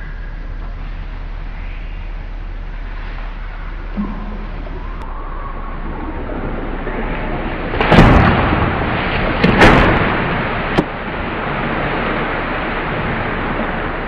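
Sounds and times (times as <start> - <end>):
heavy splashes in water: 5.8 - 14.0
sharp slap of water: 7.8 - 11.0.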